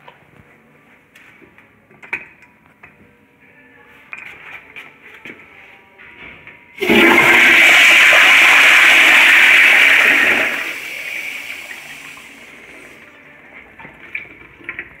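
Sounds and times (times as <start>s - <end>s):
toilet flushing: 6.8s - 15.0s.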